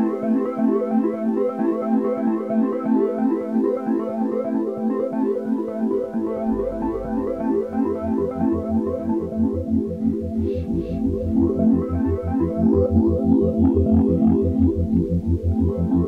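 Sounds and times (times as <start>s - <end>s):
low pulsing bass: 6.0s - 16.0s.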